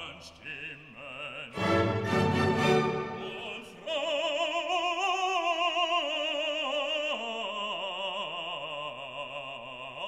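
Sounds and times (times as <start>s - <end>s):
operatic voice singing: 0.0s - 10.0s.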